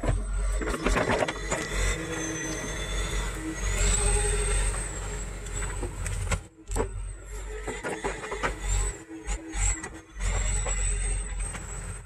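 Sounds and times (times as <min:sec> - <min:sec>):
excavator diesel engine drone: 0:00.2 - 0:08.6.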